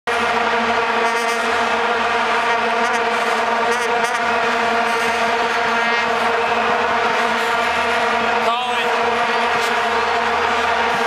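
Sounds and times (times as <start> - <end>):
vuvuzelas droning: 0.1 - 11.0.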